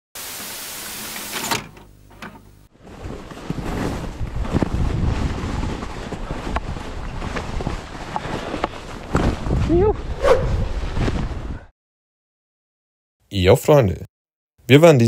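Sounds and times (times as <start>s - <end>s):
scrapes: 2.8s - 11.6s
wind rushing over microphone: 3.9s - 11.7s.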